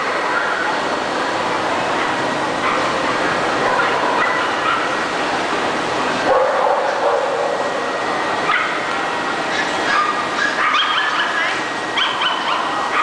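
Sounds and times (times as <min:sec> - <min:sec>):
hubbub of voices: 0:00.0 - 0:13.0
dogs barking and yipping: 0:02.0 - 0:05.1, 0:06.2 - 0:07.7, 0:08.4 - 0:08.8, 0:09.5 - 0:13.0.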